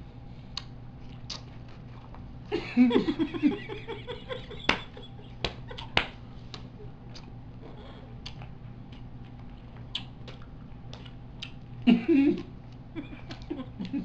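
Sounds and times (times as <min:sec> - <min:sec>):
gum chewing and snapping: 0:00.5 - 0:02.5, 0:04.8 - 0:14.0
laughter: 0:02.5 - 0:06.0, 0:11.9 - 0:14.0.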